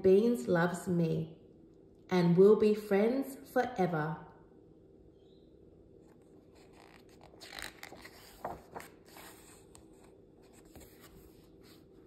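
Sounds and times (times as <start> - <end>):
book page rustling: 6.0 - 12.0.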